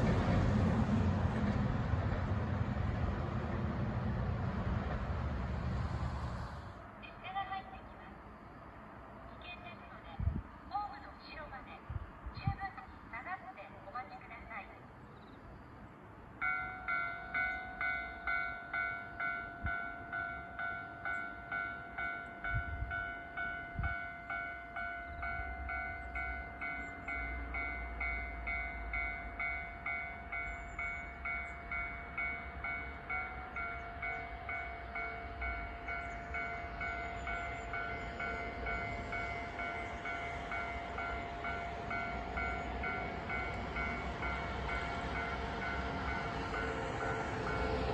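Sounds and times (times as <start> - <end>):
railway warning bell dinging: 16.4 - 47.9.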